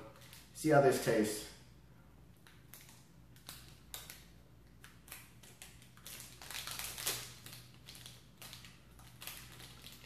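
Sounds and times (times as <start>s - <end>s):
plastic wrapper crinkling: 0.1s - 0.6s, 2.4s - 10.0s.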